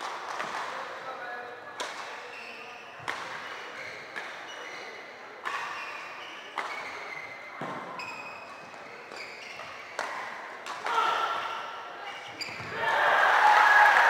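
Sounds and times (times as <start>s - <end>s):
rackets hitting shuttlecock: 0.0s - 0.9s, 1.8s - 4.6s, 5.4s - 11.6s
shoes squeaking on floor: 2.2s - 10.3s, 11.5s - 12.8s.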